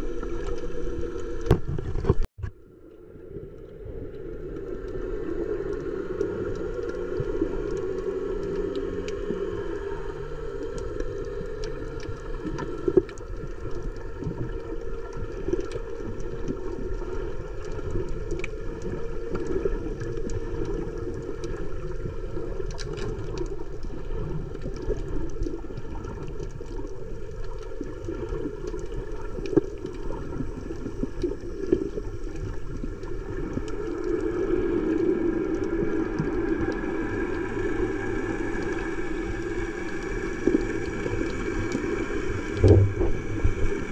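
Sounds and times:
muffled underwater rumble: 0:00.0 - 0:43.9
sharp knocks: 0:42.6 - 0:43.2.

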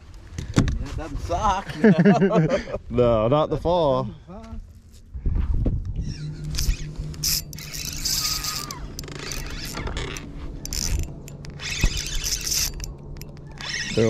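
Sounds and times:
fishing reel ratcheting: 0:06.3 - 0:14.0.

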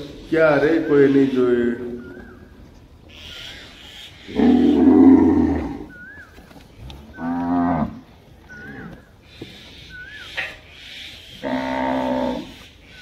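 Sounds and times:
cows mooing: 0:04.3 - 0:06.0, 0:06.9 - 0:09.0, 0:11.4 - 0:12.6.

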